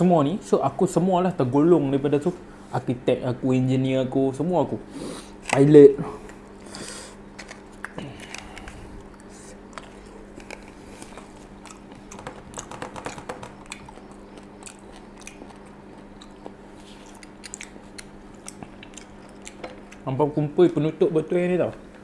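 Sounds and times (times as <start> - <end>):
low electrical hum: 0.0 - 22.0
chewing and mouth noises: 6.5 - 20.8.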